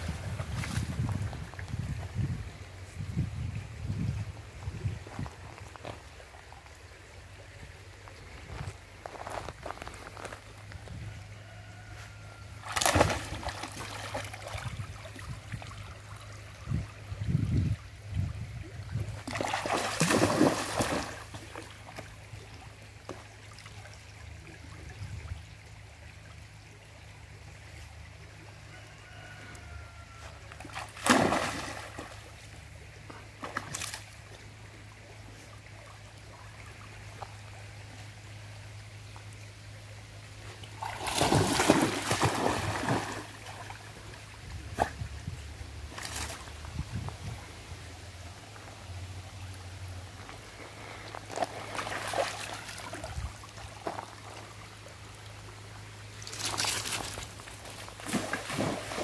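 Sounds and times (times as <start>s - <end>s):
dog splashing through water: 12.6s - 14.6s, 19.2s - 21.4s, 30.7s - 32.2s, 40.8s - 43.7s, 56.3s - 59.0s.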